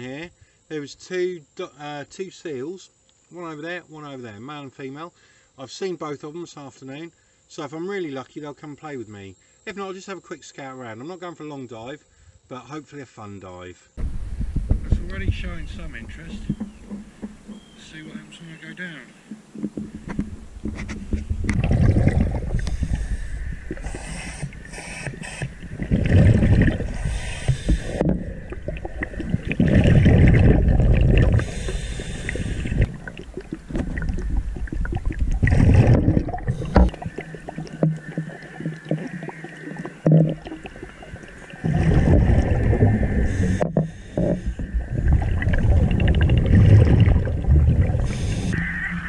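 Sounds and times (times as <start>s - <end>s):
scuba diver bubbling exhalations: 21.4s - 48.8s
diver inhaling underwater: 21.5s - 49.0s.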